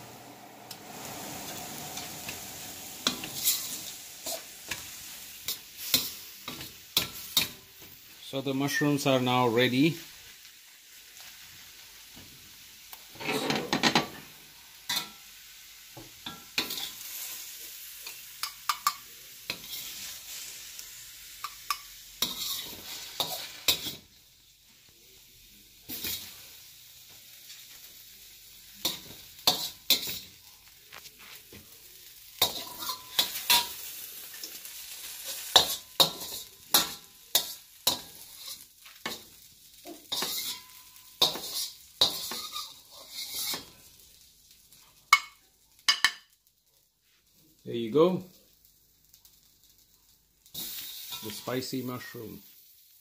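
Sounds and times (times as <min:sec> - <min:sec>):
hot pan sizzling: 0:00.0 - 0:53.0
spatula scraping a steel wok: 0:00.8 - 0:07.6, 0:13.1 - 0:14.2, 0:16.3 - 0:17.4, 0:19.5 - 0:20.5, 0:22.2 - 0:24.1, 0:28.8 - 0:30.3, 0:32.4 - 0:33.9, 0:35.0 - 0:39.3, 0:39.9 - 0:43.8.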